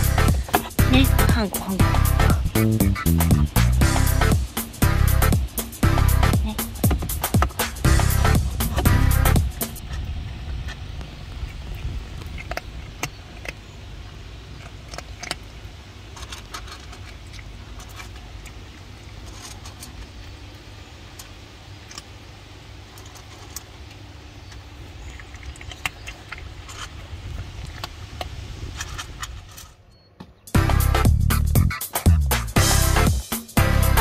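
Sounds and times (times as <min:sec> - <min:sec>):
steady low rumble: 0:00.0 - 0:29.8, 0:30.6 - 0:34.0
cat crunching dry kibble: 0:06.7 - 0:29.7.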